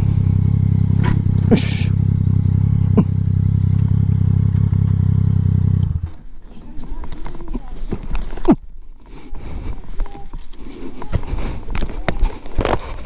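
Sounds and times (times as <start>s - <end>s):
motorcycle engine running: 0.0s - 6.5s.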